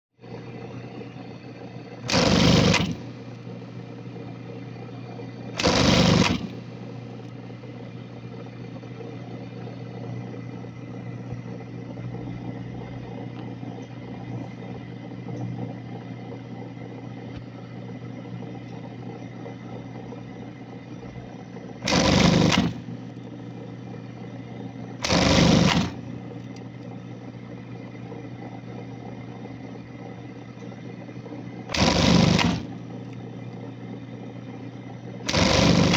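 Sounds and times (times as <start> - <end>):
sewing machine motor humming: 0.2 - 35.9
fast sewing machine stitching: 2.0 - 3.2, 5.6 - 6.6, 21.8 - 23.0, 25.0 - 26.1, 31.7 - 32.8, 35.2 - 35.9.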